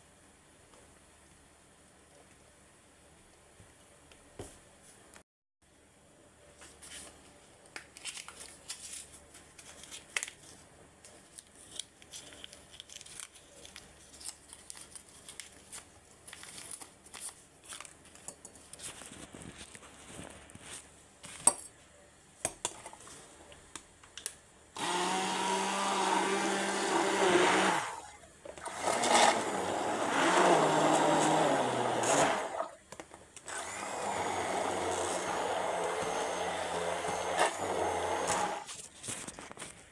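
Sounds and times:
blender motor running: 24.8s - 28.0s, 28.6s - 32.6s, 33.5s - 38.7s.

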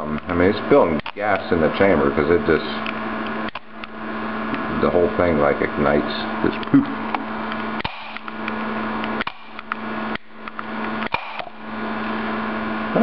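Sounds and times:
electrical hum and hiss: 0.0s - 13.0s
gas bubbles igniting with snaps: 2.8s - 4.6s, 6.6s - 11.6s.

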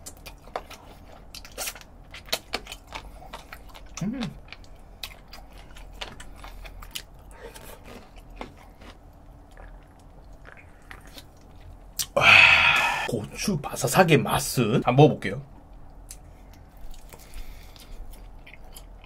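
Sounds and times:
crunchy chewing: 0.0s - 12.2s, 16.1s - 19.0s
person humming: 4.0s - 4.4s, 12.2s - 13.1s.

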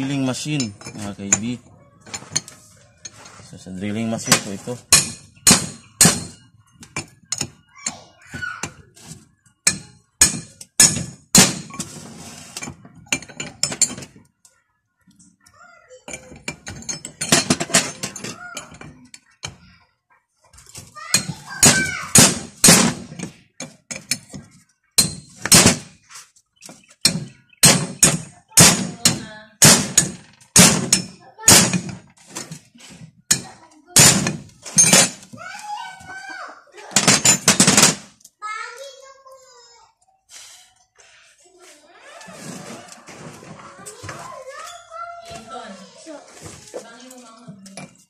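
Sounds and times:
metal wrenches clinking: 0.0s - 8.0s, 9.6s - 14.2s, 15.2s - 19.7s, 20.7s - 26.0s, 33.3s - 35.4s, 36.9s - 38.2s.

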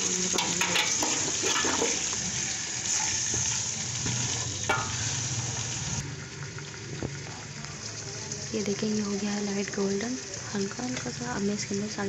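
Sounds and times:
chicken sizzling in hot oil: 0.0s - 12.0s
spatula scraping and knocking pot: 0.3s - 2.3s.

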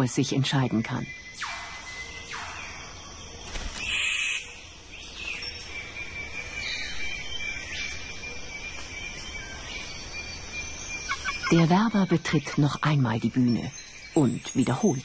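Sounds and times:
bird calls sweeping down: 3.4s - 4.5s.

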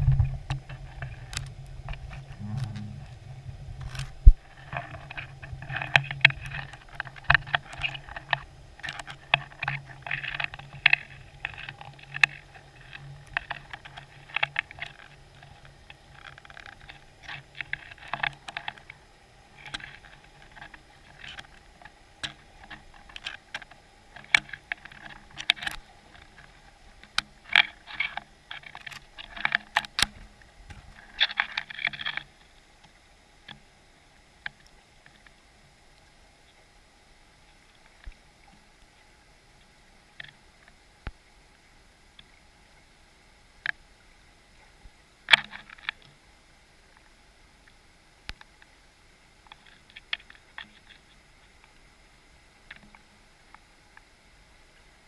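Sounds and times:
underwater clicking and crackling: 0.0s - 33.7s, 34.4s - 36.6s, 37.4s - 41.2s, 45.2s - 46.2s, 49.4s - 51.8s, 52.5s - 54.1s
low hum: 0.0s - 33.9s.

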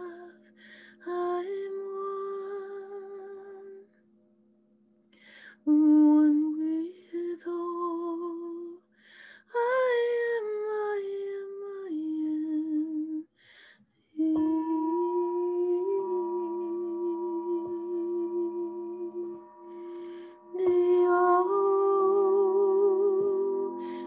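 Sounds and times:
woman toning sustained notes: 0.0s - 4.5s, 14.2s - 24.0s
faint low steady tone: 14.2s - 24.0s.

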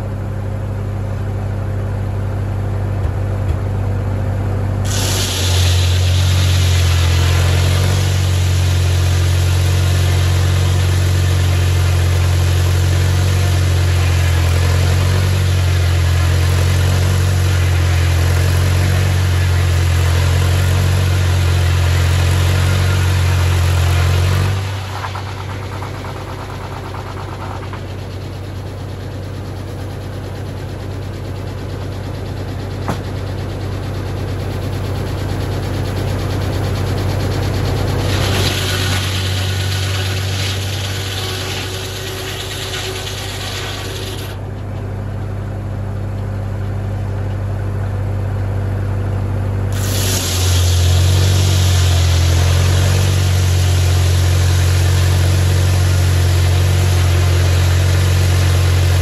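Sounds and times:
tractor engine drone: 0.0s - 59.0s
saw blade cutting wood: 4.9s - 28.1s, 38.0s - 44.4s, 49.8s - 59.0s.

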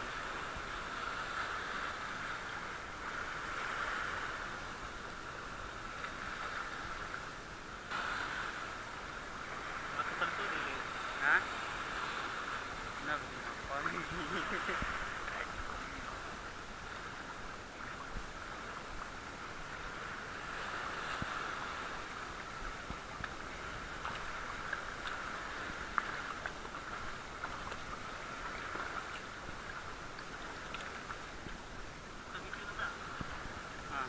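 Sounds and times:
seawater sloshing around rocks: 0.0s - 34.0s
faint clicks or small splashes: 25.9s - 31.6s.

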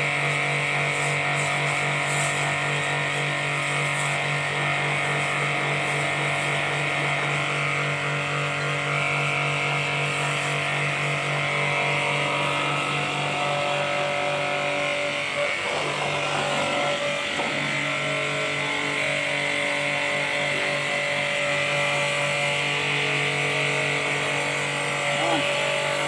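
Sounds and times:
pressure washer motor hum: 0.0s - 26.0s
water spray hissing: 0.2s - 6.9s.

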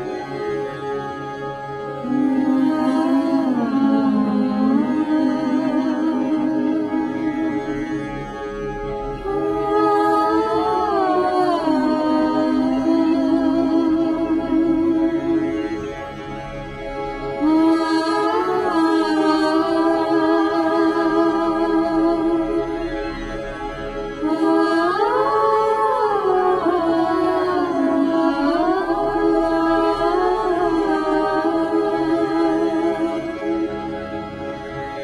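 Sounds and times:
steady drone: 0.0s - 35.0s
person singing: 1.9s - 8.1s, 9.2s - 15.6s, 17.4s - 22.8s, 24.2s - 33.9s.

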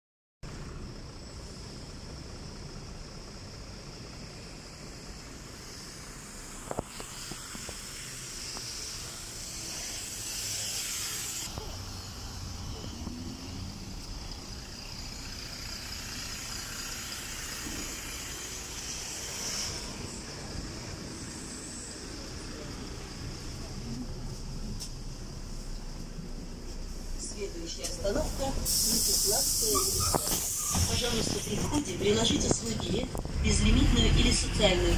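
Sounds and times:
traffic on wet road: 0.6s - 24.9s, 27.8s - 34.9s
bus air brake hiss: 5.6s - 12.0s, 16.3s - 20.2s, 28.6s - 31.3s.

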